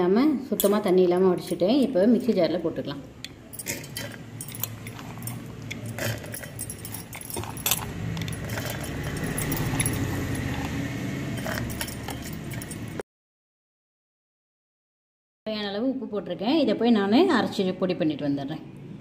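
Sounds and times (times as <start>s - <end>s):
lentils clinking on steel jar: 0.5s - 2.3s, 3.2s - 13.0s.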